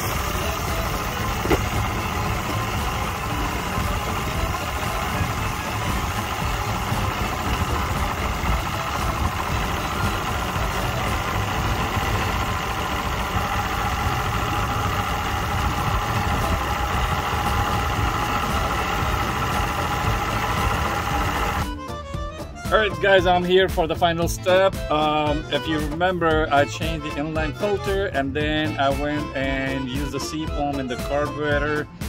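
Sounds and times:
outboard engine idling: 0.0s - 21.8s.

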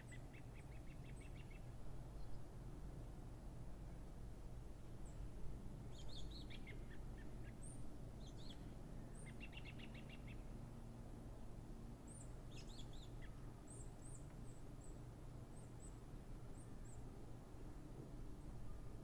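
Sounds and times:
small birds chirping: 0.0s - 2.4s, 5.9s - 10.5s, 12.1s - 14.9s.

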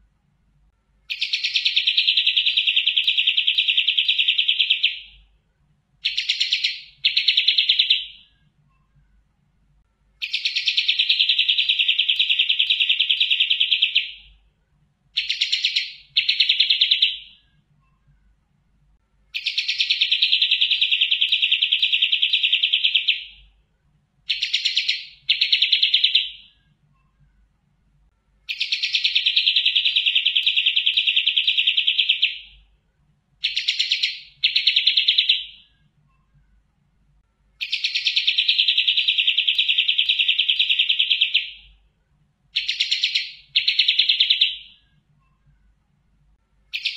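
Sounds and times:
songbird trilling: 1.1s - 5.2s, 6.0s - 8.3s, 10.2s - 14.3s, 15.2s - 17.4s, 19.3s - 23.4s, 24.3s - 26.6s, 28.5s - 32.6s, 33.4s - 35.7s, 37.6s - 41.7s, 42.6s - 44.8s.

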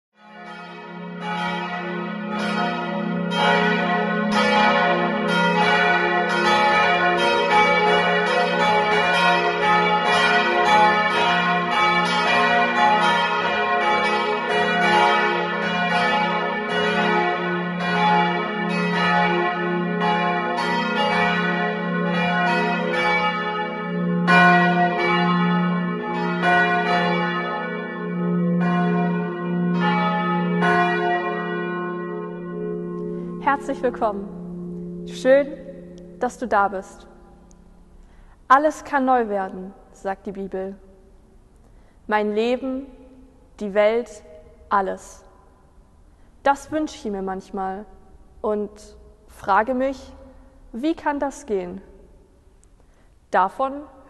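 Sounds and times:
church bells pealing: 0.2s - 40.7s.

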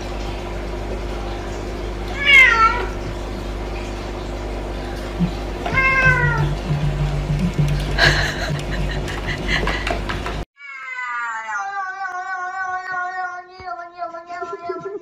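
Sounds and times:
cat meowing: 2.2s - 2.9s, 5.7s - 6.5s, 10.6s - 15.0s.

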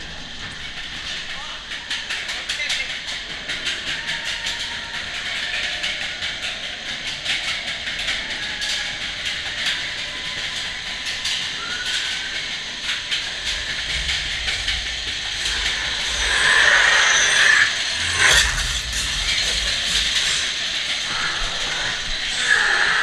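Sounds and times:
coaster chain lift clattering: 0.0s - 23.0s
steady hiss: 10.8s - 23.0s.

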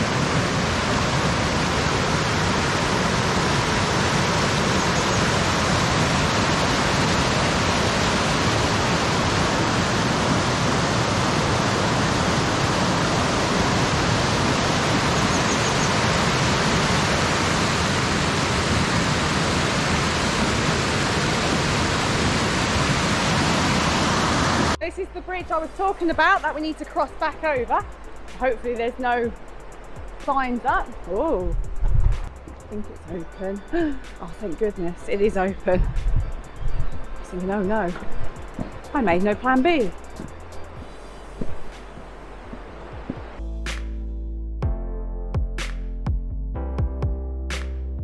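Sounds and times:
river white water rushing: 0.0s - 24.8s, 36.3s - 43.4s.

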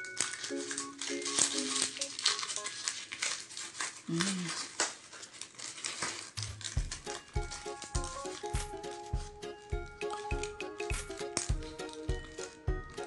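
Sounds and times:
dry crinkling and crackling: 0.0s - 13.0s
person humming: 4.1s - 4.7s.

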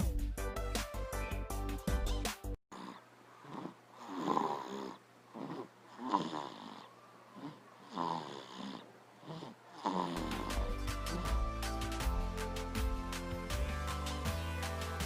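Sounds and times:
man snoring: 2.7s - 12.2s.

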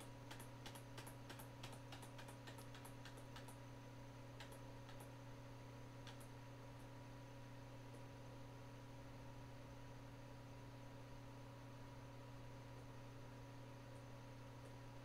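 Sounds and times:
keyboard keys clicking: 0.0s - 3.6s, 4.4s - 5.1s
steady low hum: 0.0s - 15.0s.

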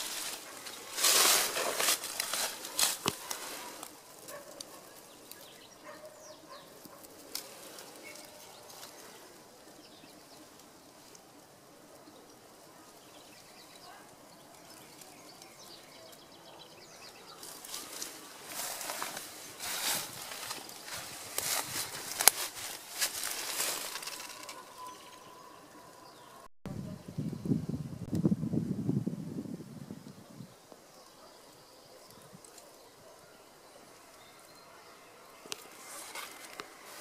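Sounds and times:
rustling and scuffing: 0.0s - 5.0s, 17.4s - 24.6s, 35.6s - 37.0s.

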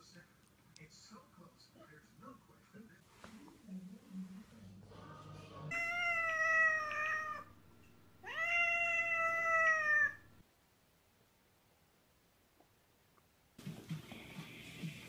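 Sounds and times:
cat meowing: 5.7s - 7.6s, 8.2s - 10.4s.

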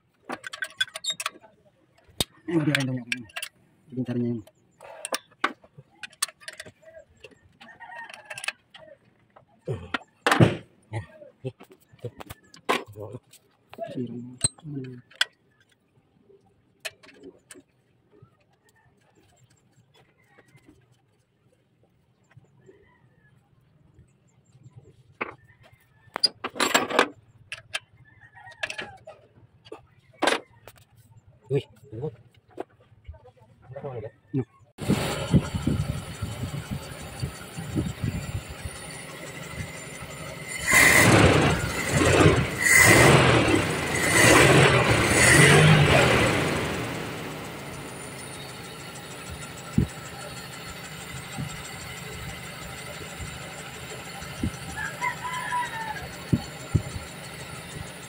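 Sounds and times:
car engine idling and revving: 34.8s - 58.0s.

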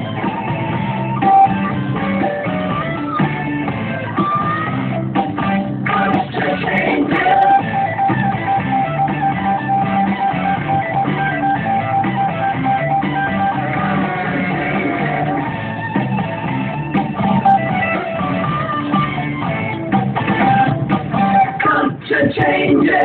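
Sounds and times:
rock music with guitar: 0.0s - 23.0s.

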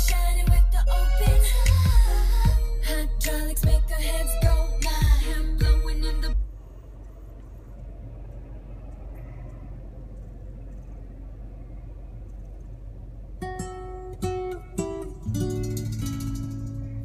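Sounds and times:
music from car stereo: 0.0s - 6.6s, 13.6s - 17.0s
low car cabin rumble: 0.0s - 17.0s
plucked guitar music: 13.4s - 17.0s.

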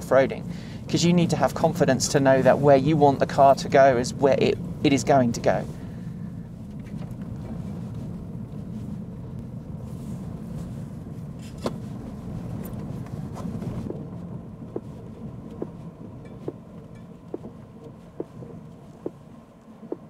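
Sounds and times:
gravel clicking under tyres: 6.6s - 20.0s
tyres rumbling on gravel: 6.6s - 20.0s.

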